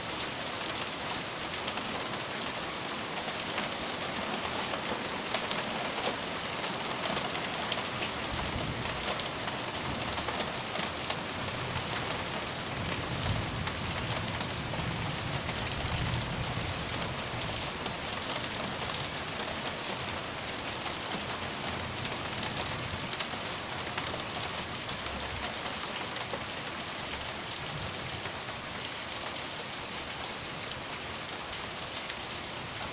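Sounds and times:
rain on street and cars: 0:00.0 - 0:32.9.

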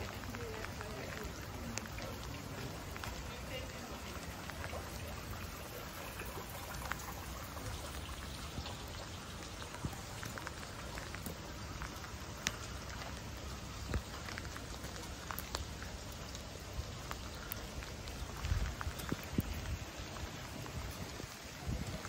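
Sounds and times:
rain on cobblestones: 0:00.0 - 0:22.0.

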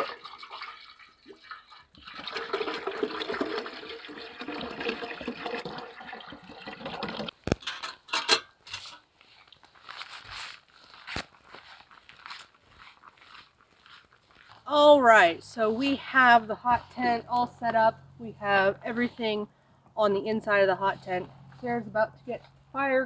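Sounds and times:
water glugging from a jug: 0:00.0 - 0:07.4.

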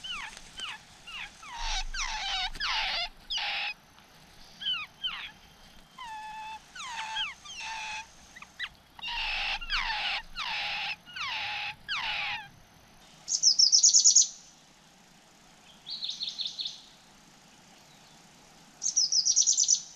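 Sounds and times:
bird rapid high trills: 0:06.2 - 0:12.5.

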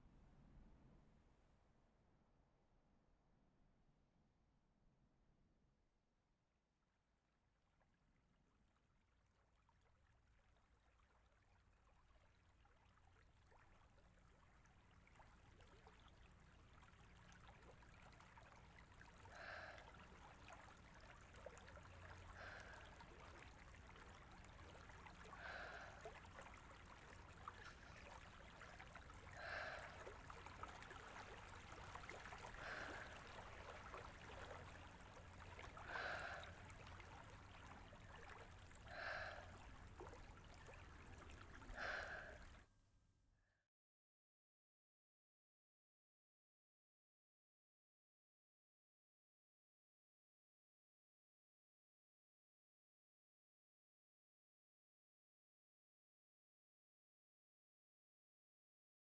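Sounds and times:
soft rush of water: 0:09.2 - 0:42.7
woman gasping: 0:41.8 - 0:42.4.

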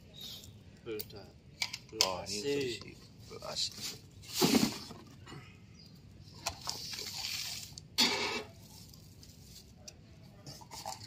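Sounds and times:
scraping against cardboard box: 0:03.8 - 0:05.0.

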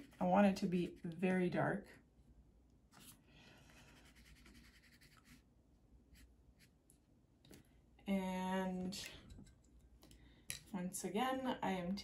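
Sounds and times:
brush scratching on paper: 0:00.0 - 0:01.2, 0:03.8 - 0:05.4.

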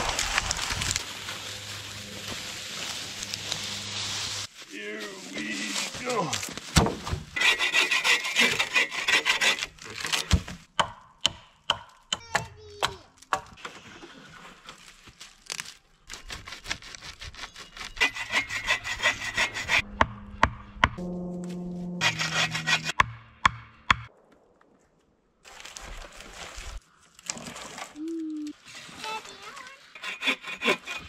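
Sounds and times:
bow saw cutting log: 0:07.4 - 0:10.0, 0:16.2 - 0:20.1, 0:22.0 - 0:23.2, 0:29.9 - 0:31.0.

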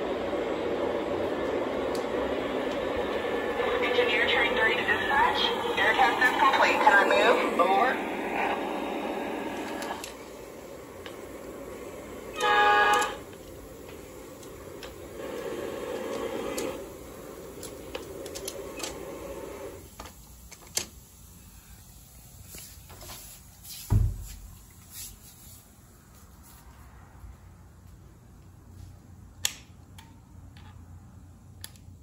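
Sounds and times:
model train rumbling on track: 0:00.0 - 0:22.1
model train horn blast: 0:12.2 - 0:13.4.

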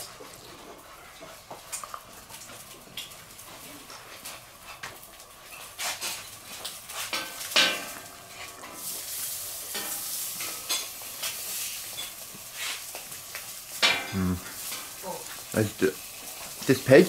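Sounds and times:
sausages sizzling on a griddle: 0:00.0 - 0:17.0
low hum of a voice: 0:14.1 - 0:15.8.

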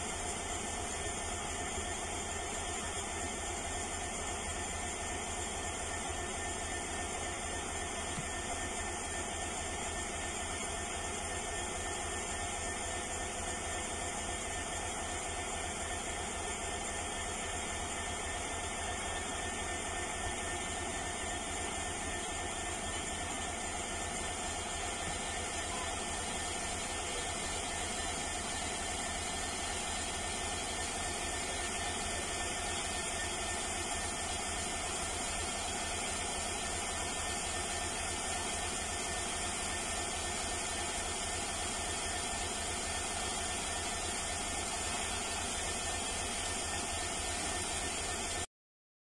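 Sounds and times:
diesel locomotive engine idling: 0:00.0 - 0:48.4.

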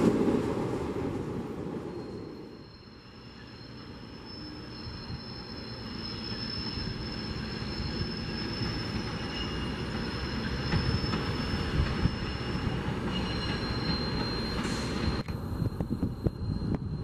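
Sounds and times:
train rumble: 0:00.0 - 0:02.6
train wheels squealing: 0:01.6 - 0:17.0.

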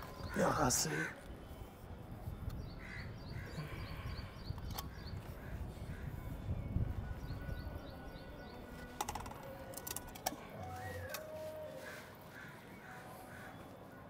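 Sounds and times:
small birds chirping: 0:02.4 - 0:09.0
sharp clicks: 0:04.5 - 0:05.1.

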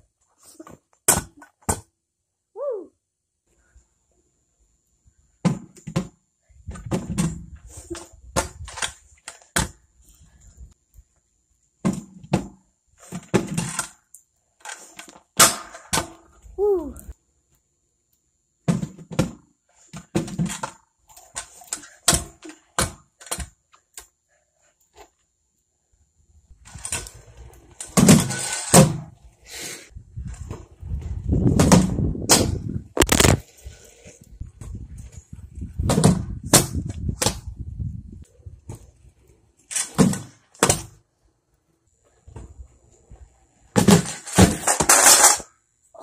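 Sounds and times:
scooter wheels landing and rolling: 0:00.3 - 0:02.0, 0:05.4 - 0:10.8, 0:11.8 - 0:16.6, 0:18.6 - 0:24.2, 0:26.5 - 0:41.0, 0:42.0 - 0:45.7.

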